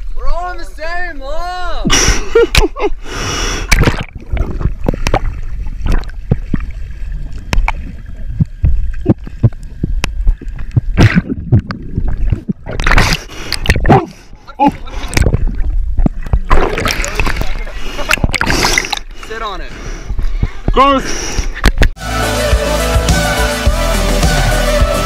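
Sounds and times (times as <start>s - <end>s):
underwater sloshing and gurgling: 3.0s - 21.8s
water splashing: 3.5s - 22.0s.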